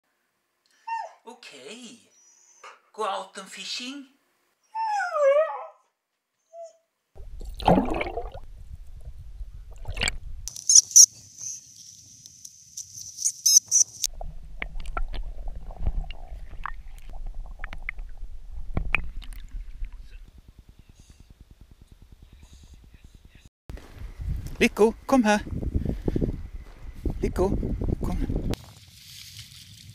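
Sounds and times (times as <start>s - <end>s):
dog whining: 0.8s - 1.2s, 2.1s - 2.8s, 4.6s - 6.9s
wind on microphone: 8.4s - 10.5s, 14.2s - 28.6s
rustling in dry grass: 23.7s - 24.6s, 28.6s - 29.9s.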